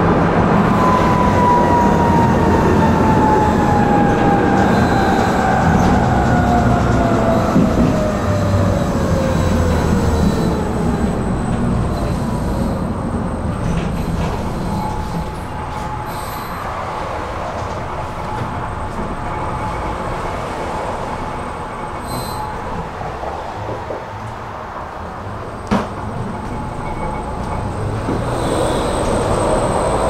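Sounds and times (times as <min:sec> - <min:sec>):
tram running on rails: 0:00.0 - 0:30.0.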